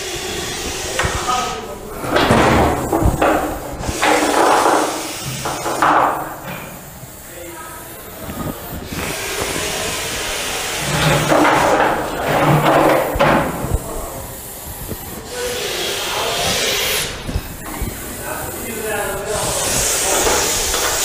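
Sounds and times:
snake hissing loudly: 0.0 - 1.7, 8.8 - 11.0, 14.6 - 17.2, 19.3 - 21.0.

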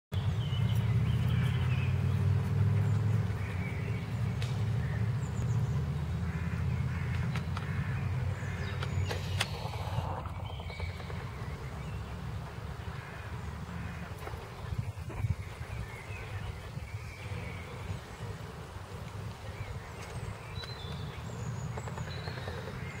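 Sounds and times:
birds chirping faintly: 0.1 - 23.0
low rumble: 7.8 - 13.9.

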